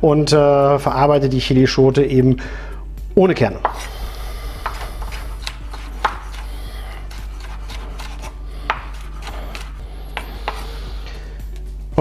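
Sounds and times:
knife chopping on wooden board: 3.6 - 11.0.

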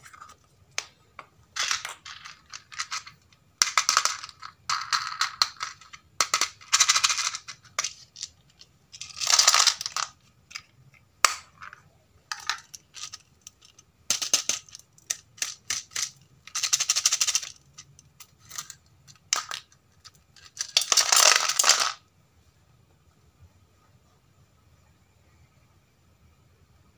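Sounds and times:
plastic pieces rattling in a tub: 1.6 - 22.0.

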